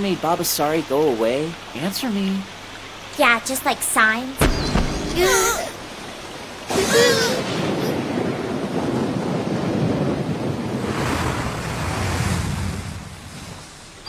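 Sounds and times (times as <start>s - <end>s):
heavy rain pouring: 0.0s - 14.0s
wavering high-pitched cry: 5.2s - 5.8s.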